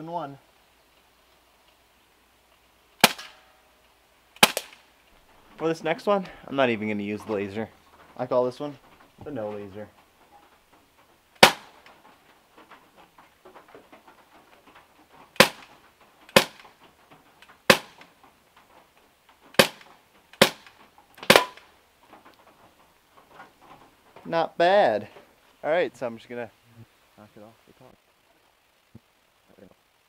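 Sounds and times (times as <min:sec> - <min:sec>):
bb pistol shots: 0:03.0 - 0:03.5, 0:04.4 - 0:04.9, 0:11.4 - 0:11.9, 0:15.4 - 0:15.7, 0:16.3 - 0:16.7, 0:17.6 - 0:18.1, 0:19.6 - 0:21.7.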